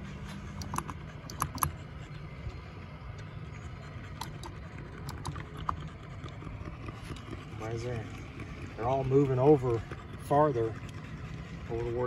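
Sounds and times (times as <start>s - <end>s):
light clicks and ticks: 0.5s - 1.8s, 4.1s - 7.3s.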